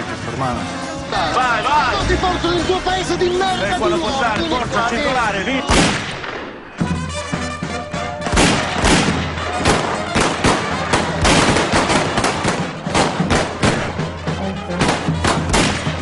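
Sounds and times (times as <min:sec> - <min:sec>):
brass band playing: 0:00.0 - 0:16.0
pistol shots: 0:05.7 - 0:06.9, 0:08.2 - 0:13.9, 0:14.8 - 0:16.0.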